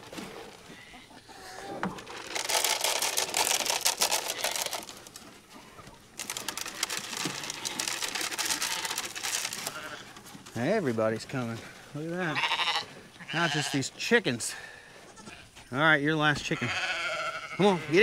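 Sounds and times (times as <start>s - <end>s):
feed pellets pouring into trough: 2.0s - 5.0s, 6.2s - 10.0s.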